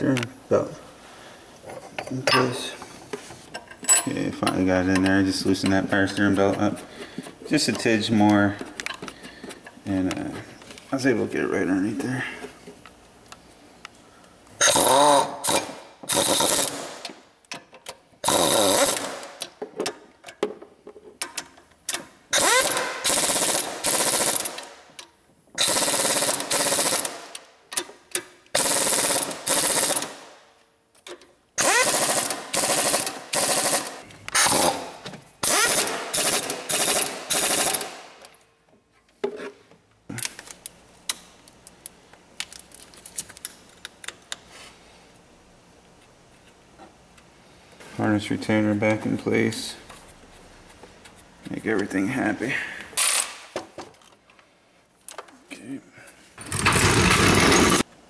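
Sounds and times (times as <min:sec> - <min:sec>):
impact wrench hammering bolts: 0:03.5 - 0:06.7, 0:14.6 - 0:20.6, 0:21.2 - 0:24.7, 0:31.6 - 0:38.0, 0:56.4 - 0:57.9.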